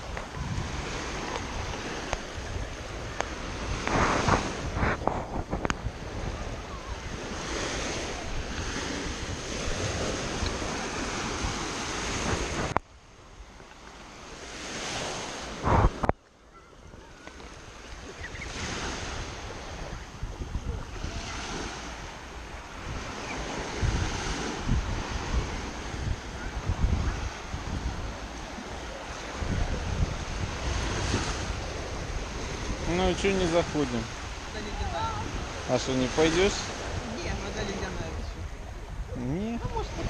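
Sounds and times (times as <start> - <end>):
wind buffeting microphone: 0.0 - 13.7, 14.3 - 40.0
waves washing up a sandy shore: 0.0 - 40.0.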